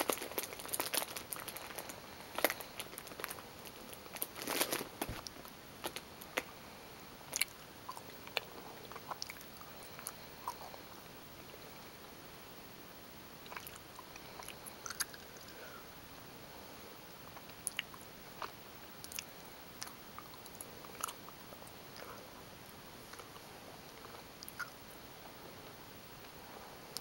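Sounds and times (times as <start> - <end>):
steady hiss: 0.0 - 27.0
mouth clicks and smacks: 7.3 - 10.8, 13.4 - 15.4, 17.3 - 22.2, 24.0 - 24.8
person chewing: 7.3 - 10.9, 13.5 - 15.7, 17.3 - 22.2, 24.0 - 24.8.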